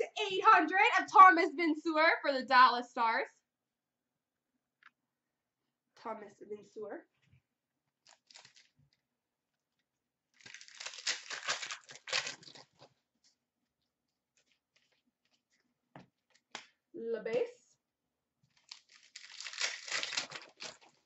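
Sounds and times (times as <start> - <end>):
wrapper crackling and crinkling: 8.0 - 9.0, 10.4 - 12.9, 14.3 - 15.4, 18.5 - 21.0.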